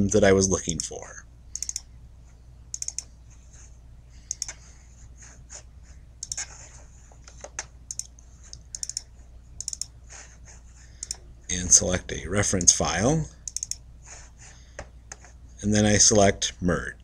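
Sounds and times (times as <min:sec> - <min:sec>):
faint low hum: 0:00.0 - 0:17.0
computer mouse clicking: 0:01.5 - 0:01.9, 0:02.7 - 0:03.1, 0:04.2 - 0:04.6, 0:06.2 - 0:06.6, 0:07.2 - 0:09.9, 0:11.0 - 0:11.2, 0:13.4 - 0:13.8.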